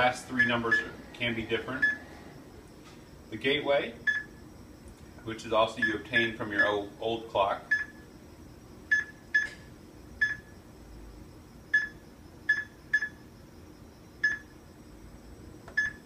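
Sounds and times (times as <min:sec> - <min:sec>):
keypad beeping: 0:00.3 - 0:02.1, 0:15.8 - 0:16.0.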